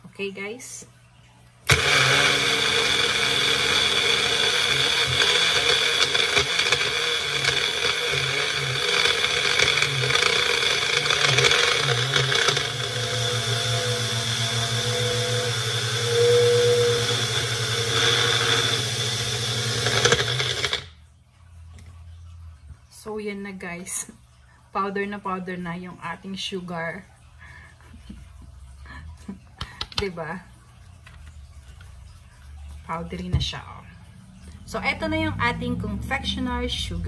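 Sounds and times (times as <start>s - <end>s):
blender motor whining: 1.6s - 20.9s
gritty rattle of sugar grinding: 1.7s - 20.9s.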